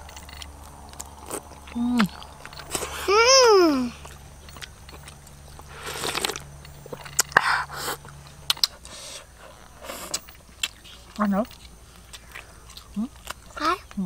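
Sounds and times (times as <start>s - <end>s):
person chewing: 0.0s - 14.0s.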